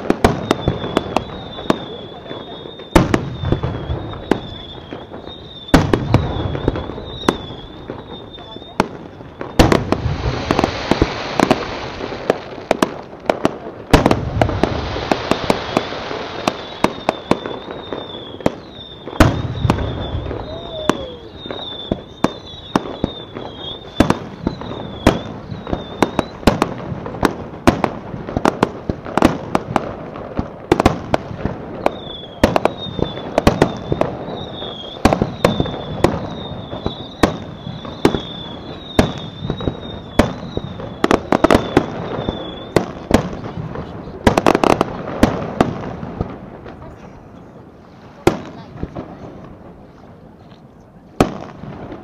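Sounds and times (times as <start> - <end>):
fireworks bursting with bangs: 0.0 - 52.0
high wavering whistle: 0.4 - 8.8, 16.5 - 26.4, 31.9 - 42.8.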